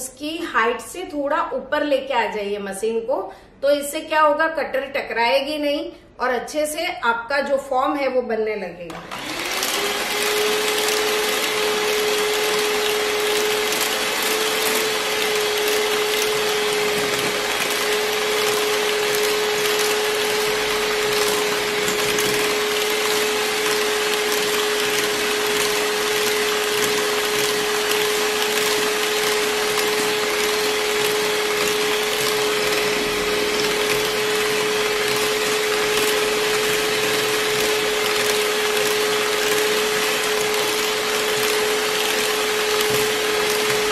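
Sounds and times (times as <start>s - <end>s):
electric hand mixer whirring: 8.9s - 43.9s.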